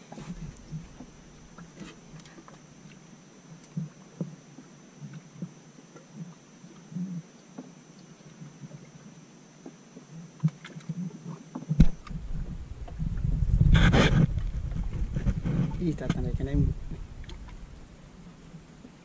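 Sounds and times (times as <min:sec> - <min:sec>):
knocks and handling on boat: 0:11.5 - 0:17.9
low rumble: 0:11.8 - 0:18.8.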